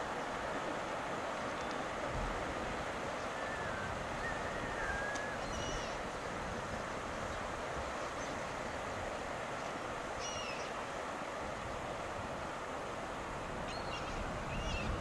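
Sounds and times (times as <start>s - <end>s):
river water rushing: 0.0s - 15.0s
short high bird calls: 10.2s - 10.7s.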